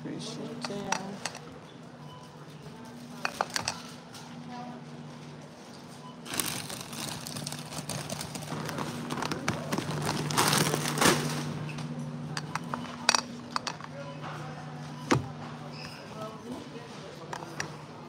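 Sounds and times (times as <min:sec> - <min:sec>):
plastic bags crinkling: 0:06.3 - 0:11.5.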